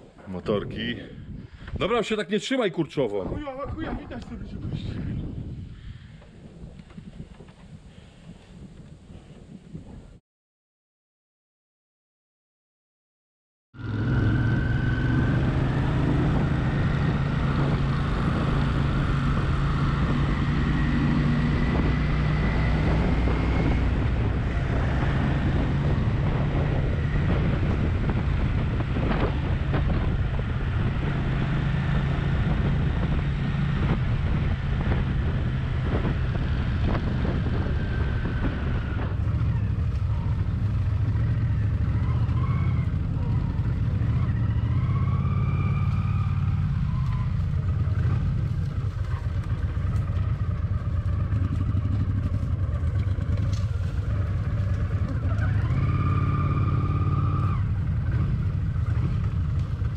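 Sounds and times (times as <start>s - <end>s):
wind noise on microphone: 0.0s - 2.2s, 3.0s - 10.2s, 13.8s - 59.9s
motorcycle engine cruising: 13.8s - 59.9s.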